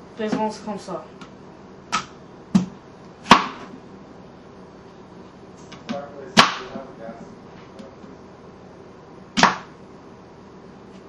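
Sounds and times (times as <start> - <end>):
sharp knocks and thumps: 1.9 - 3.7.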